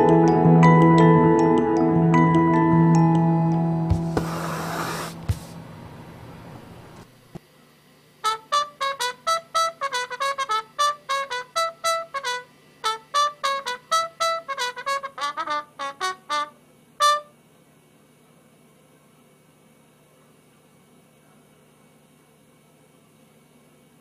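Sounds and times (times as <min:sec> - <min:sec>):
trumpet playing short detached notes: 0:08.2 - 0:17.3.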